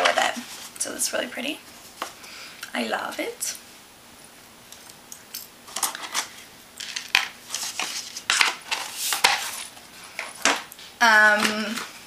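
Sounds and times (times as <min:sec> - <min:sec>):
gift packaging rustling: 0:05.7 - 0:10.6.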